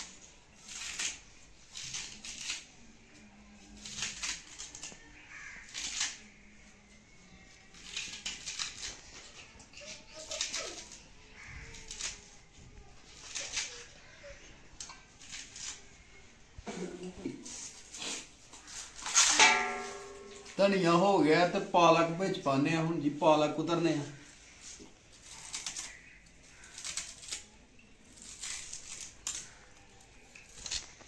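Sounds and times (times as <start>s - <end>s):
knife slicing herbs: 3.8s - 5.0s, 7.7s - 9.0s, 13.1s - 13.9s, 14.8s - 15.8s, 24.6s - 27.5s, 28.1s - 29.6s.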